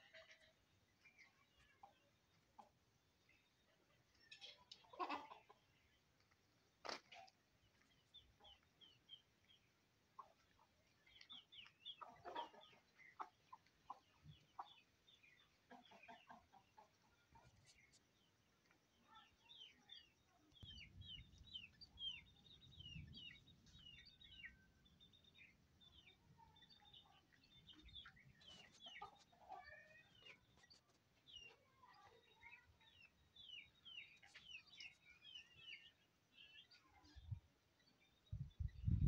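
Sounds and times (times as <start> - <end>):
chicks peeping: 7.7 - 18.0, 19.5 - 24.5, 25.1 - 37.4.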